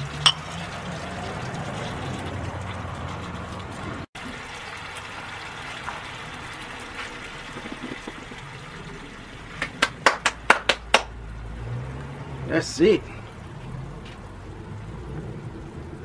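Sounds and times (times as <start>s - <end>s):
sauce bubbling and sizzling in pan: 0.0s - 10.0s.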